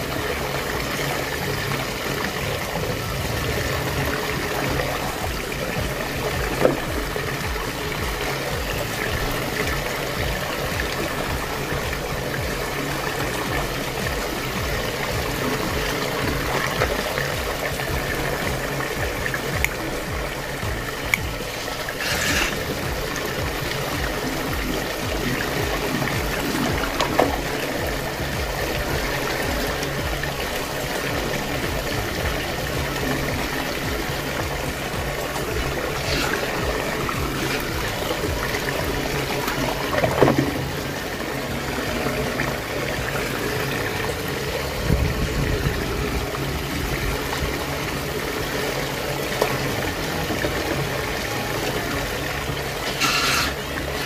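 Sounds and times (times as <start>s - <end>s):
water gurgling down drain: 0.0s - 54.0s
toys splashing into water: 3.7s - 42.6s.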